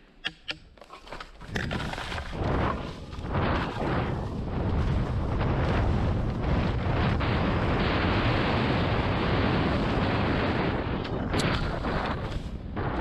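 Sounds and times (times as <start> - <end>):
skis crunching through dry leaves: 0.8 - 6.7
wind buffeting microphone: 1.5 - 13.0.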